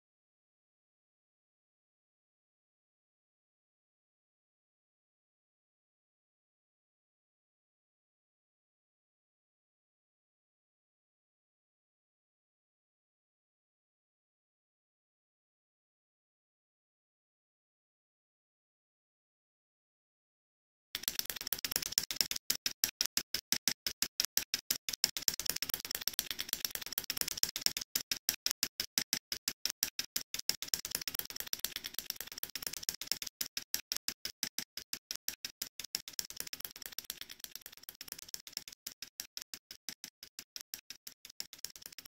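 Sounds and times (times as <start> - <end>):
bicycle chain ticking on screwdriver: 21.0 - 42.0.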